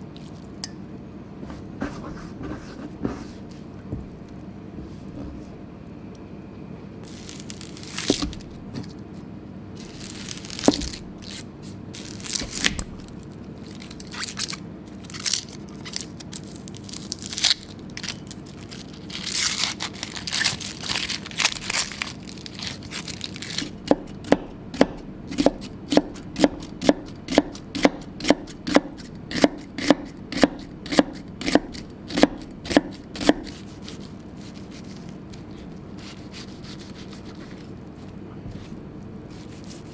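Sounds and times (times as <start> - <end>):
onion skin crackling and tearing: 7.0 - 9.0, 9.8 - 24.1
knife slicing onion on board: 8.0 - 9.0, 10.5 - 11.4, 23.6 - 37.5.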